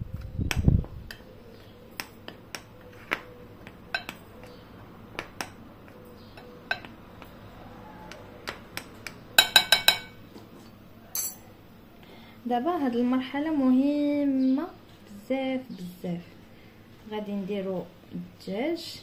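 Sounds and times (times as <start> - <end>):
metal spoon clicking on glass bowl: 11.2 - 11.4.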